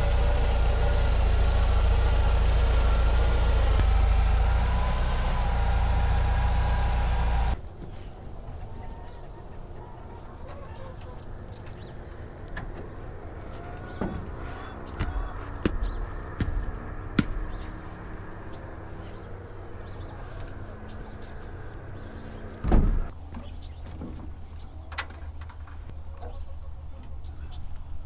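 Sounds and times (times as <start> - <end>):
chickens calling faintly: 7.6 - 18.0
heavy thump: 15.0 - 17.6, 22.6 - 23.1.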